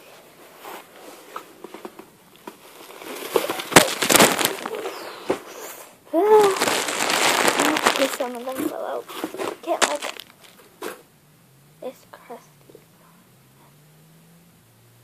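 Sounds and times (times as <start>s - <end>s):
plastic packaging crinkling: 2.4s - 5.4s, 6.2s - 10.7s.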